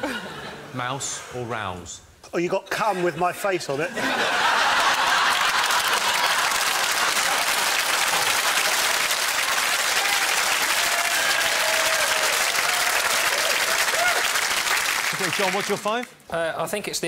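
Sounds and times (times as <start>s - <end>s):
audience applauding: 4.5s - 16.1s.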